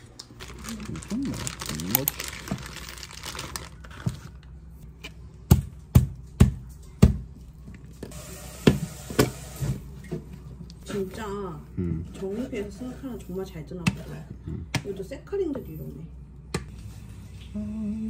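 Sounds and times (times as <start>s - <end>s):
plastic wrapping crinkling: 0.0s - 4.6s.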